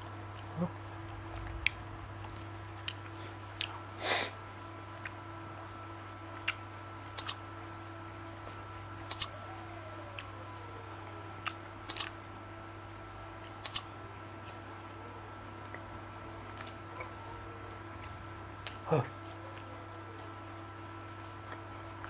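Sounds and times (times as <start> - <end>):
steady low hum: 0.0 - 22.0
wet chewing mouth clicks: 1.2 - 3.8, 6.4 - 6.6, 11.4 - 12.1
puff of breath: 4.0 - 4.4.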